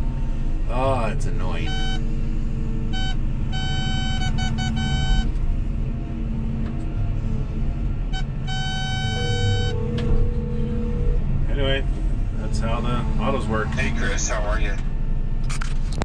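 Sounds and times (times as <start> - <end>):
excavator diesel engine running: 0.0 - 16.0
mobile phone ringing: 1.6 - 2.0, 3.0 - 5.2, 8.5 - 9.9.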